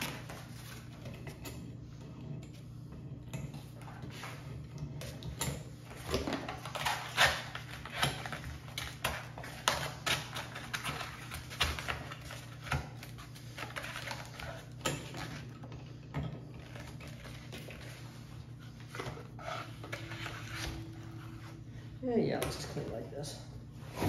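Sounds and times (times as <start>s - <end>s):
cardboard rustling and scraping: 16.6s - 21.9s.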